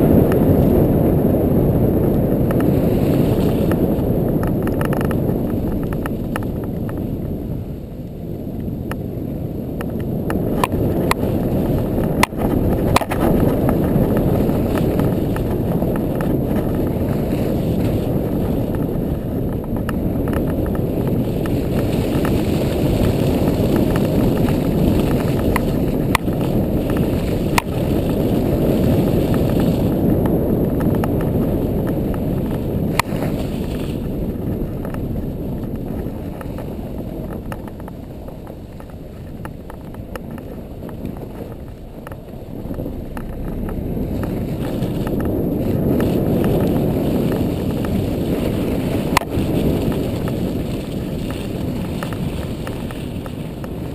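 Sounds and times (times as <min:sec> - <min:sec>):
atv engine rumbling: 0:00.0 - 0:53.9.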